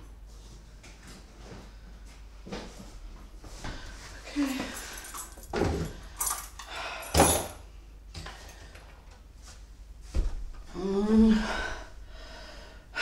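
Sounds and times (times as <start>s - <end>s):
woman breathing with rising pitch: 10.7s - 13.0s.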